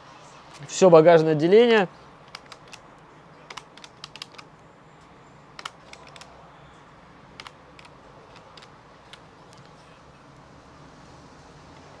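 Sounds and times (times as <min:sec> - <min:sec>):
keys clicking: 0:02.3 - 0:02.8, 0:03.5 - 0:04.5, 0:05.6 - 0:06.3, 0:07.4 - 0:09.8.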